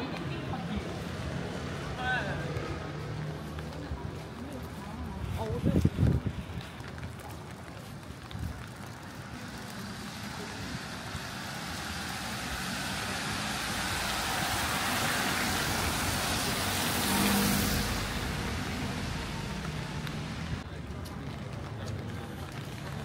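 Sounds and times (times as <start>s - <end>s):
vehicle driving past: 8.9s - 20.6s.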